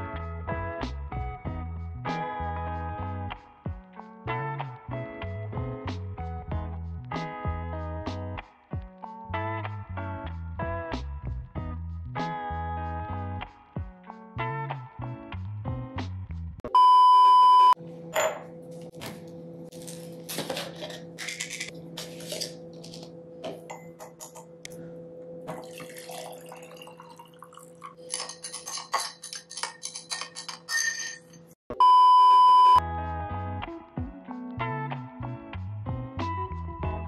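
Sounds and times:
high test-tone beep: 16.7 - 17.8, 31.8 - 32.8
steady low hum: 17.8 - 26.3
scoop clinking against glass jar: 25.5 - 31.5.

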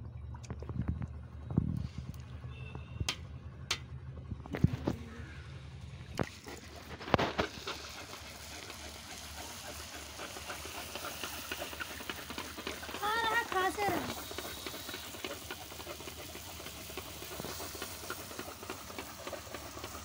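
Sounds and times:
sharp clicks and knocks: 3.0 - 3.9
hot oil sizzling: 7.4 - 20.0.

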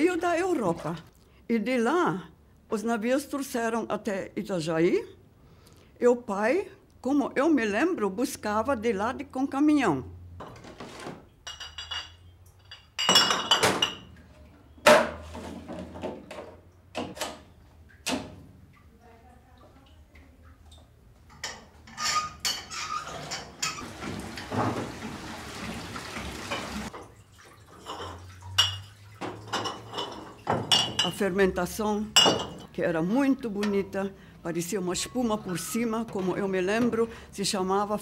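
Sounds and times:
glass bottles clinking: 11.4 - 14.2, 27.7 - 31.2, 32.1 - 32.7.

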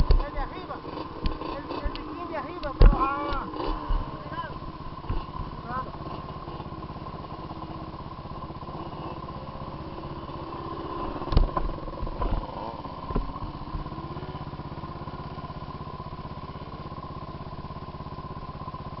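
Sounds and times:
knocks and thumps: 0.0 - 0.3, 2.6 - 3.0
quad bike engine running: 0.0 - 19.0.

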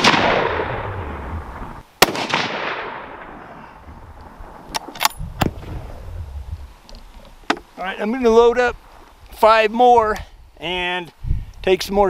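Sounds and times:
rifle shot with echo: 0.0 - 3.8.

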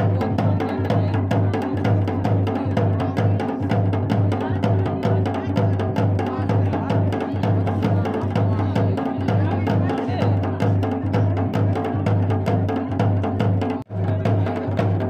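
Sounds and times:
dhol drum beating dance rhythm: 0.0 - 15.0.

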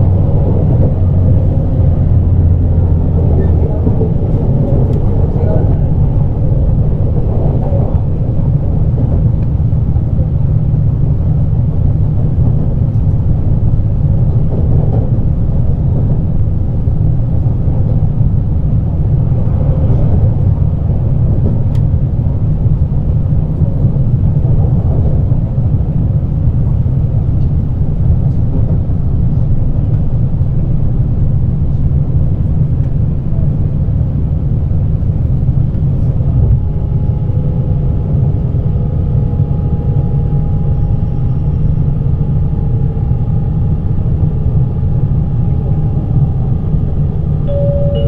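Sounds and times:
train wheels rumbling on rail: 0.0 - 48.0.

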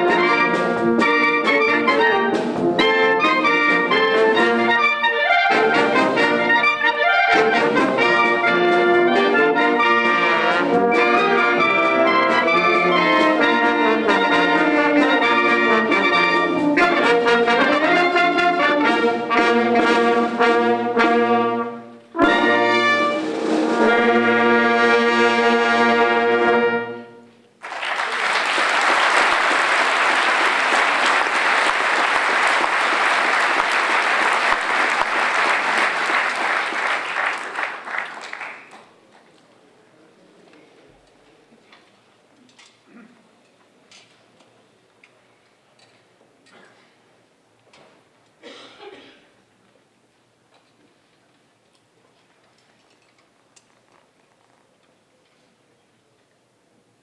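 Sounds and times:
brass band with clarinets: 0.0 - 38.7
audience applause: 27.6 - 39.0.

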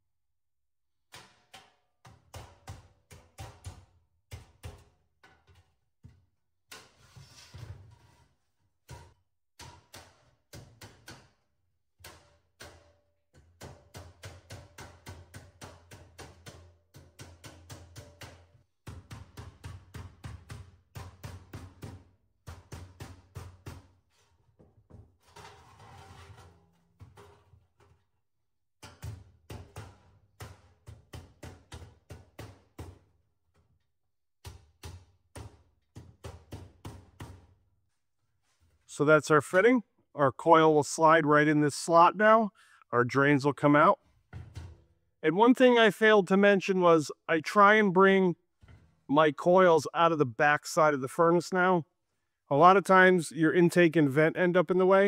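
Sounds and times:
hammer tapping sheet metal: 12.0 - 23.9.

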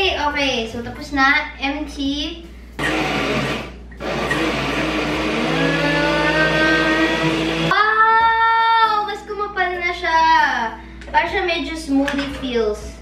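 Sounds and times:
liquid churning in blender: 2.8 - 7.7
blender motor whining: 2.8 - 7.8.

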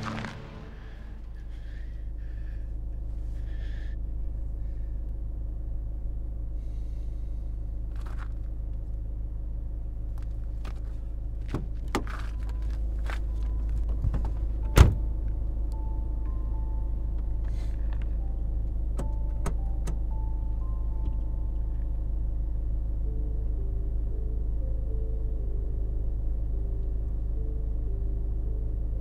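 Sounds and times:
steady low rumble: 0.0 - 29.0.

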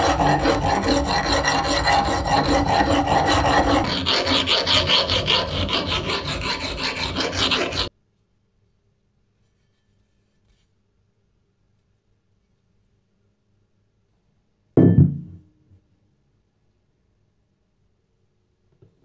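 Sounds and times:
file rasping on metal: 0.0 - 7.9.

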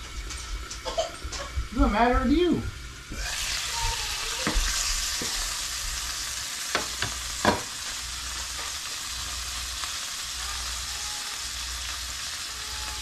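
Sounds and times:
fish sizzling in a frying pan: 2.9 - 13.0.

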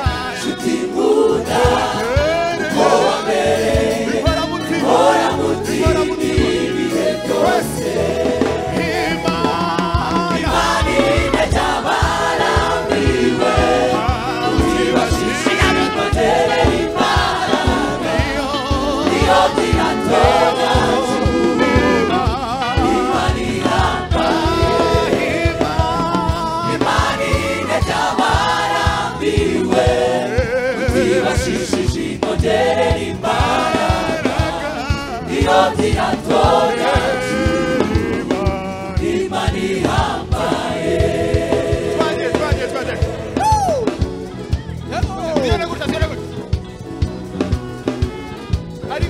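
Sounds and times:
drums keeping a steady beat: 0.0 - 49.0
gospel choir singing: 0.0 - 49.0
keyboards: 0.0 - 49.0.

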